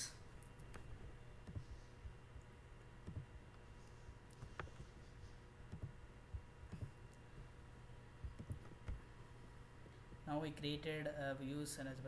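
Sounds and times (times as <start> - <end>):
faint steady hum: 0.0 - 12.0
computer mouse clicks: 2.4 - 5.0, 5.7 - 6.0, 6.6 - 7.0, 8.3 - 9.0.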